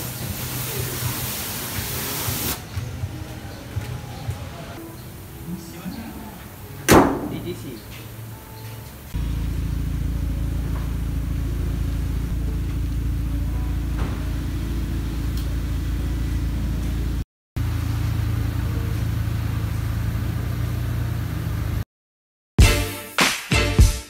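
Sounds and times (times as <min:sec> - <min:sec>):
car engine idling: 0:04.8 - 0:21.8.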